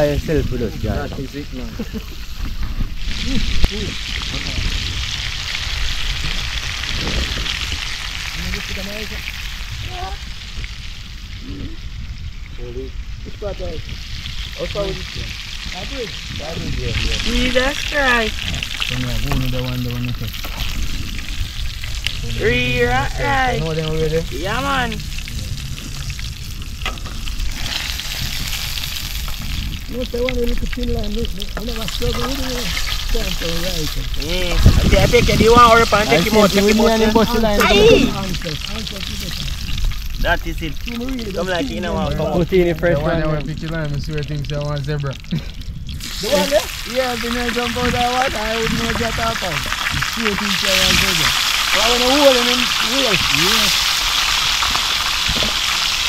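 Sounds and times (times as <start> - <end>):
fish sizzling in hot oil: 0.0 - 56.0
person speaking: 34.2 - 39.2.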